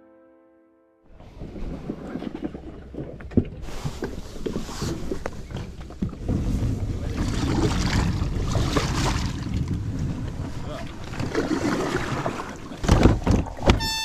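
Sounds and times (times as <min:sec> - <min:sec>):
water against boat hull: 0:01.1 - 0:14.0
boat gear knocks and clicks: 0:01.9 - 0:06.6, 0:11.1 - 0:14.0.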